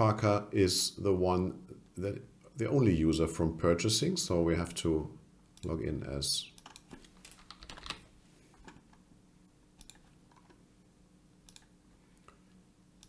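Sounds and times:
keyboard and mouse clicks: 0:06.6 - 0:08.0, 0:09.8 - 0:10.6, 0:11.5 - 0:11.7.

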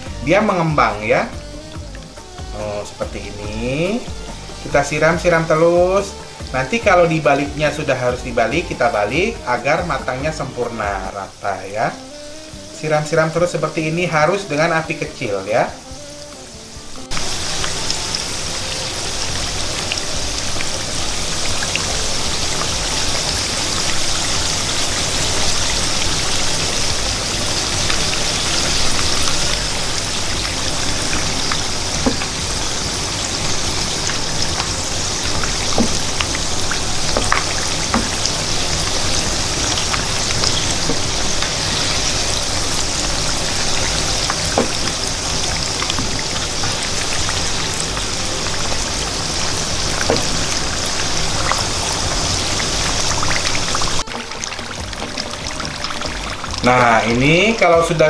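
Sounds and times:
food deep-frying in oil: 0:00.0 - 0:58.0.

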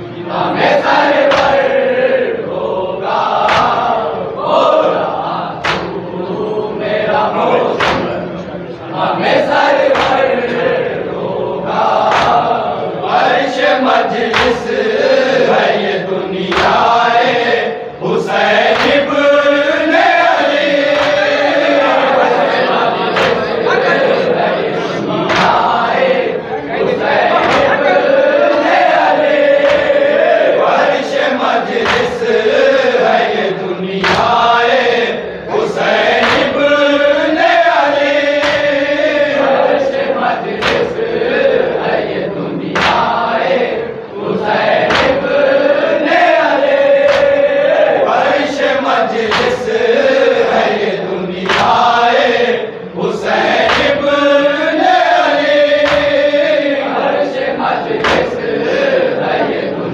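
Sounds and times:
men chanting in unison: 0:00.0 - 0:59.9
chest-beating slaps: 0:01.2 - 0:01.7, 0:03.4 - 0:04.0, 0:05.6 - 0:06.0, 0:07.7 - 0:08.3, 0:09.9 - 0:10.7, 0:12.0 - 0:12.6, 0:14.1 - 0:14.8, 0:16.5 - 0:17.0, 0:18.4 - 0:19.1, 0:20.4 - 0:21.7, 0:23.1 - 0:23.6, 0:25.3 - 0:25.8, 0:27.3 - 0:27.9, 0:29.6 - 0:30.1, 0:31.7 - 0:32.3, 0:34.0 - 0:34.5, 0:36.0 - 0:36.6, 0:38.3 - 0:39.1, 0:40.6 - 0:41.0, 0:42.7 - 0:43.2, 0:44.8 - 0:45.3, 0:47.0 - 0:47.4, 0:49.2 - 0:49.7, 0:51.4 - 0:52.0, 0:53.5 - 0:54.1, 0:55.4 - 0:56.5, 0:58.0 - 0:58.5.

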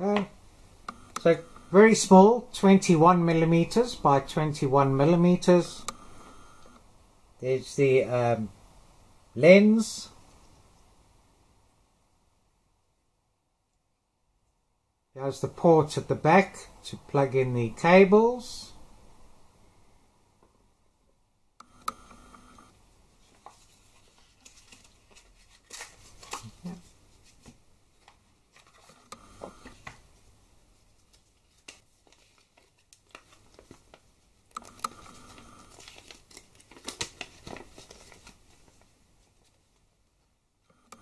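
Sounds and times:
paper rustling and crinkling: 0:23.2 - 0:29.0, 0:30.8 - 0:34.2, 0:35.1 - 0:39.9.

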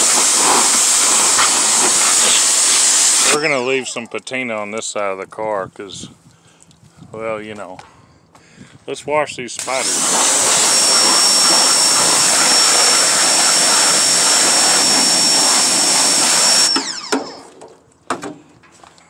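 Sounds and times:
pressure washer spraying water: 0:00.0 - 0:03.8, 0:09.6 - 0:17.4.

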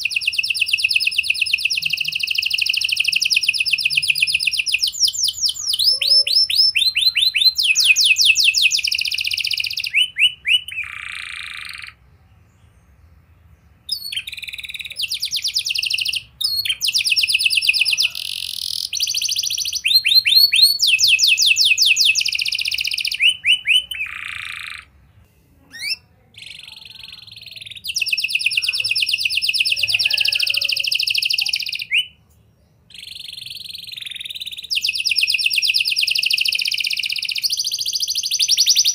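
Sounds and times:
canary singing trills: 0:00.0 - 0:38.9.

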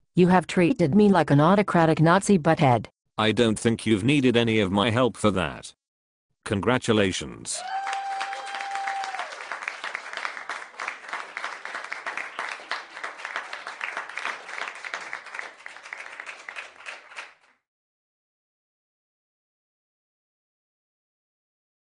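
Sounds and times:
audience applause: 0:07.6 - 0:17.5.

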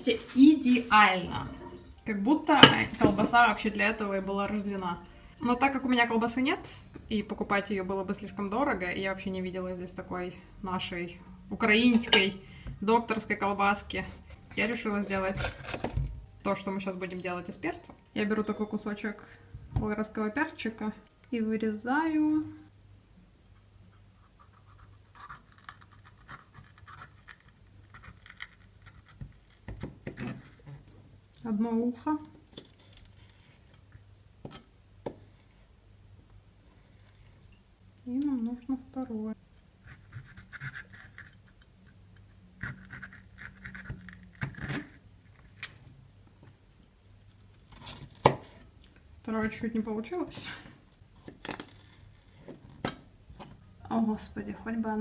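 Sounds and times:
knife cutting pepper: 0:39.8 - 0:41.6, 0:42.6 - 0:45.0.

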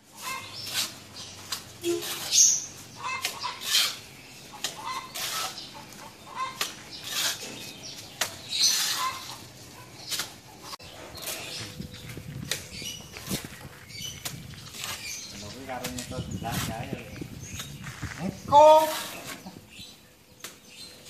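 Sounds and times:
trowel scraping on wall: 0:00.2 - 0:04.0, 0:04.6 - 0:05.7, 0:06.3 - 0:09.4.

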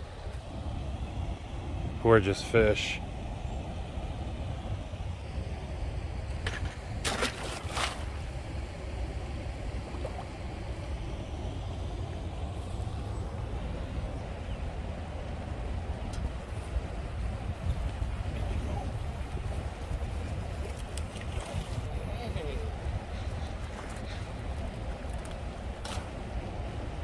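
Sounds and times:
wind rumble on microphone: 0:00.0 - 0:27.0
fish splashing in water: 0:07.0 - 0:08.3.

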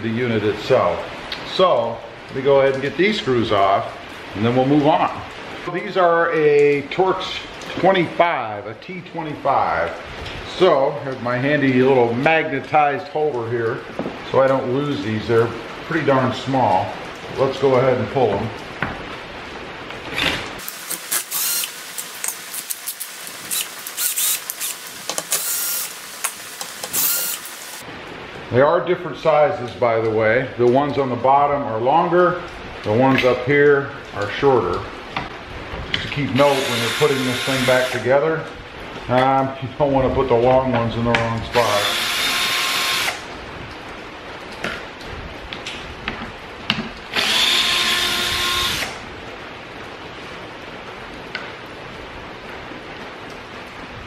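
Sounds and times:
cordless drill whine: 0:20.6 - 0:27.8, 0:36.4 - 0:38.0, 0:41.6 - 0:43.2, 0:47.1 - 0:49.0
power screwdriver spinning: 0:20.6 - 0:27.8, 0:36.4 - 0:38.0, 0:41.6 - 0:43.2, 0:47.2 - 0:48.9.

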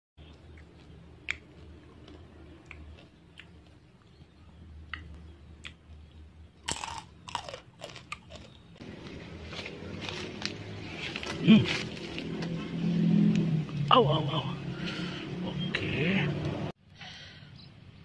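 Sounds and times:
loud crunching and chewing: 0:00.2 - 0:12.7
fried insects crackling: 0:05.0 - 0:11.3.

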